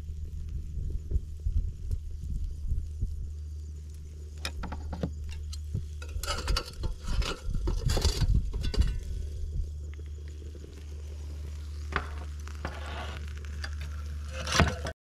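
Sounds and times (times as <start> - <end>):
low rumble: 0.0 - 14.4
metal spatula scraping grill grate: 4.9 - 9.2, 12.0 - 14.9.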